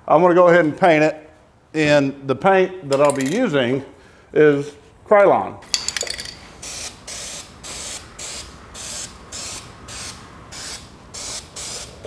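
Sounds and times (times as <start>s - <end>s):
spray paint can hissing bursts: 6.6s - 12.0s.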